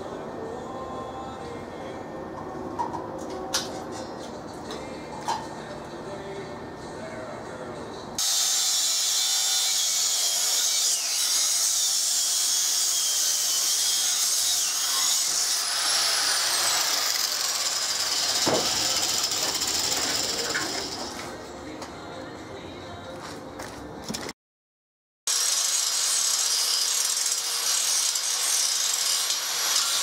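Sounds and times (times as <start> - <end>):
angle grinder grinding steel: 8.2 - 21.4, 25.3 - 30.0.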